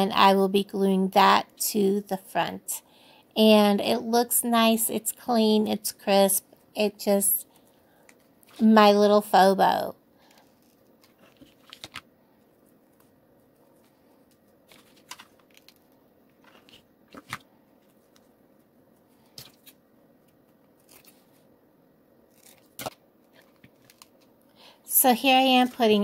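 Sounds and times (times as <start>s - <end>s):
ribbon rustling: 10.2s - 21.5s.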